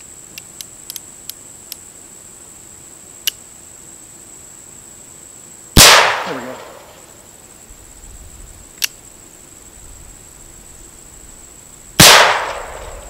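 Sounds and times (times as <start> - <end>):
revolver gunshot with echo: 5.8 - 7.0, 12.0 - 13.0.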